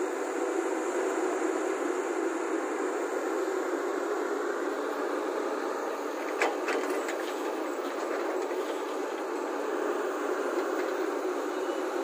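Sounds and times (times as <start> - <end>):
excavator engine and hydraulics: 0.0 - 12.0
clattering impacts: 6.2 - 9.5
earth and stones dumped into truck: 6.3 - 9.5.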